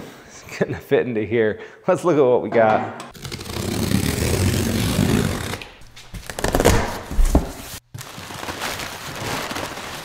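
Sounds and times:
knife slitting packing tape: 3.2 - 7.7
paper packing rustling: 3.2 - 10.0.

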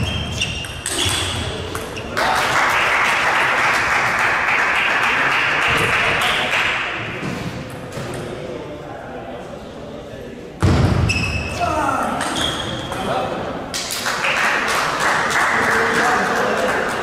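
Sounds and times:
table tennis ball bouncing: 0.1 - 2.0.

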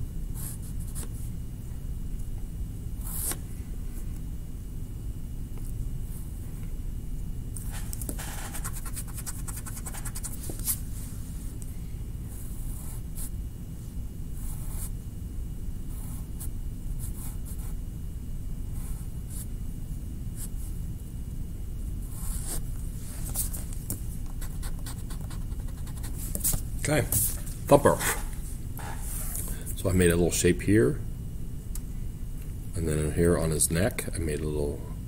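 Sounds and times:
low hum: 0.0 - 35.0
pencil scratching on paper: 7.7 - 10.8, 22.1 - 22.6, 24.3 - 26.6.

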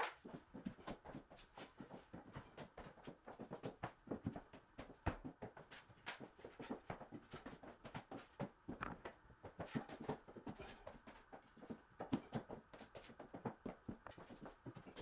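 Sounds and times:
faint clicking and knocking: 1.7 - 15.0.

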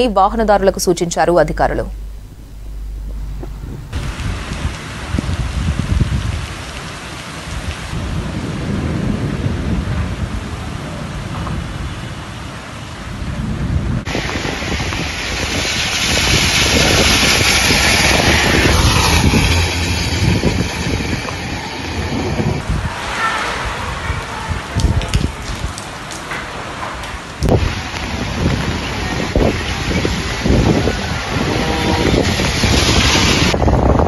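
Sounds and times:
low rumble: 0.0 - 6.5, 13.6 - 25.2
wind: 0.0 - 34.0
storm rain: 2.0 - 34.0.

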